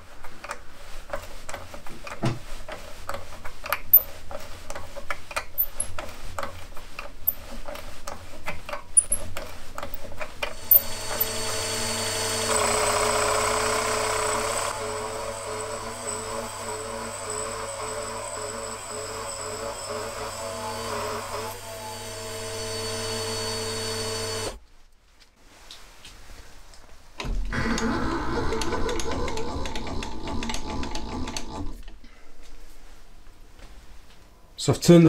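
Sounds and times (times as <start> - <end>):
cutter cutting aluminium: 10.5 - 24.6
milling machine spindle whine: 10.5 - 24.6.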